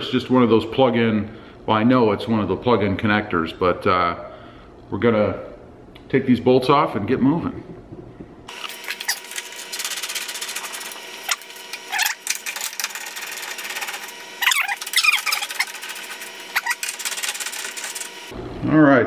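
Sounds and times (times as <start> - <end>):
ratchet clicking rapidly: 8.6 - 18.3
short squeaks: 14.4 - 17.0.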